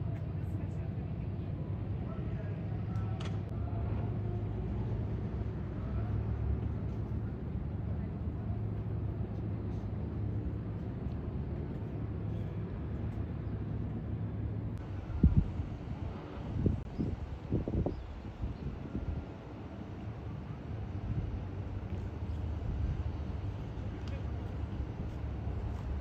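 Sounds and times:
low outdoor rumble: 0.0 - 26.0.

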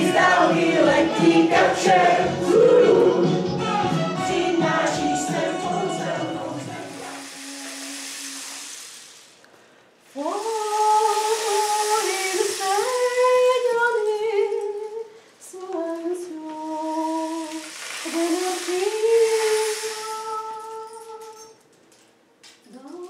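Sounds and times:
woman singing wordless melody: 10.1 - 21.6, 22.7 - 23.0.

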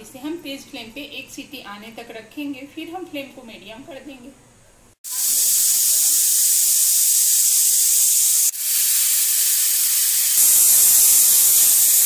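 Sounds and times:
pressure cooker whistle: 5.1 - 12.0.

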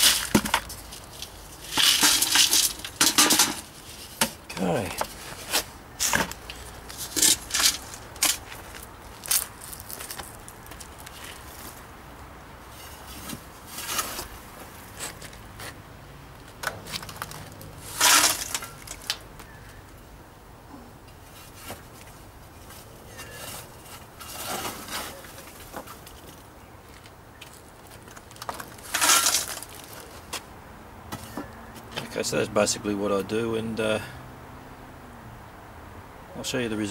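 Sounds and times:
chunks rattling in metal bucket: 0.0 - 4.2, 16.7 - 19.2, 28.6 - 30.0.

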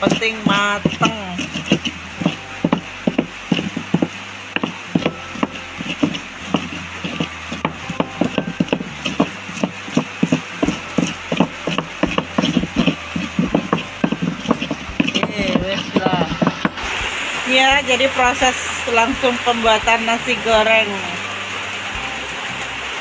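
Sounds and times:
stone pestle pounding in mortar: 0.0 - 16.9.

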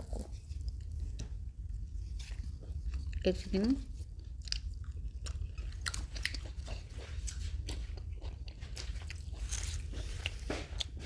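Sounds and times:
low steady rumble: 0.0 - 11.0
person chewing: 0.0 - 11.0.

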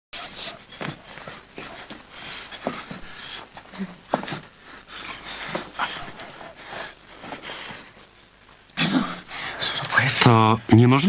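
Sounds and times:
man panting heavily: 0.2 - 8.0.

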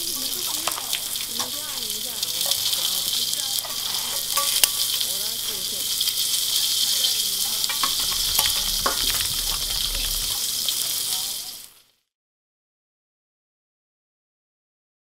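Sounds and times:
meat sizzling in a pan: 0.0 - 12.0.

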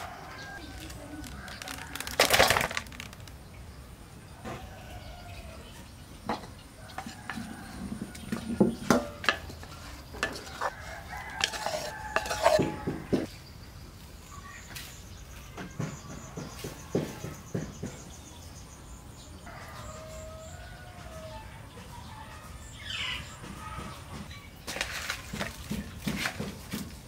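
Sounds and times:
rooster crowing: 4.4 - 5.7, 10.4 - 13.3, 19.5 - 21.6
utensils clinking against pots: 6.3 - 13.3.

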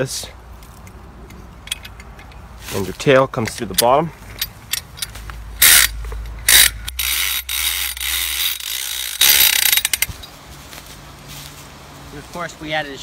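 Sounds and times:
ratchet lever clattering and clicking: 1.3 - 2.4, 3.3 - 10.3.

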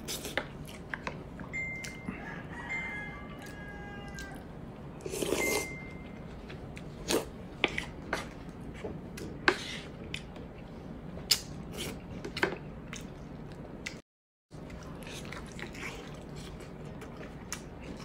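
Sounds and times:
chewing: 14.6 - 18.0.

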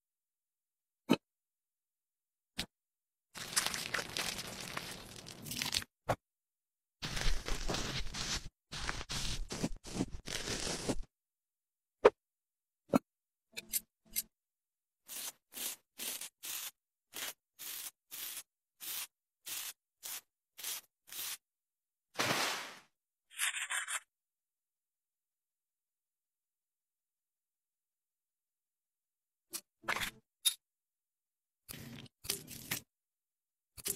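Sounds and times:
shaving foam fizzing: 15.1 - 21.4.

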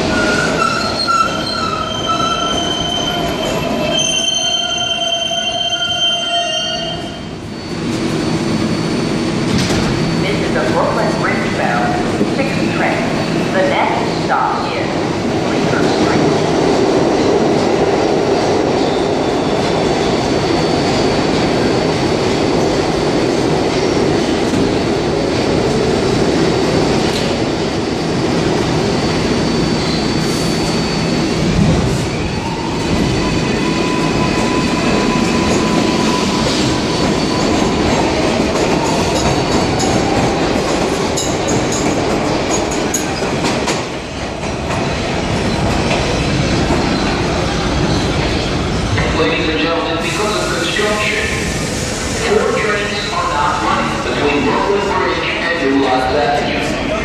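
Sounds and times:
train wheels clattering and squealing: 0.0 - 13.6, 17.0 - 25.9, 26.6 - 49.4.

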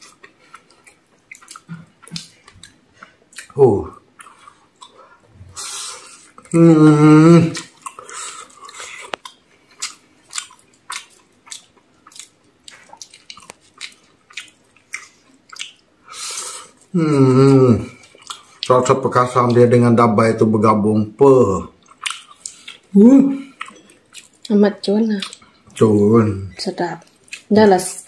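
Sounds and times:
person chewing food: 0.0 - 19.7, 21.6 - 27.6
wet mouth clicks and lip smacks: 1.3 - 3.6, 9.0 - 15.8, 21.8 - 22.8, 25.2 - 25.8
person humming mmm: 3.6 - 4.0, 5.4 - 8.4, 16.9 - 18.0.

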